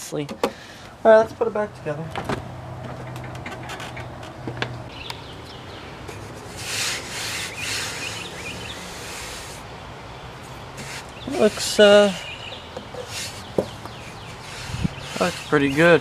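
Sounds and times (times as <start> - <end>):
hand rubbing on wooden cabinet: 13.0 - 16.0.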